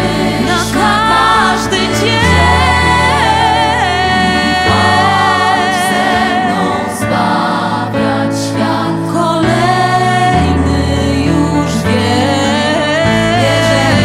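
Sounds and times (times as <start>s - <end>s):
vocal ensemble singing in harmony: 0.0s - 14.0s.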